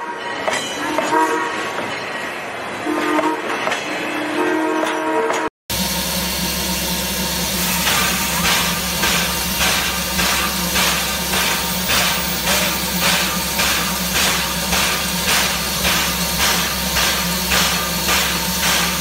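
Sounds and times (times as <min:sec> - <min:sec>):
steam locomotive puffing: 0:05.7 - 0:19.0.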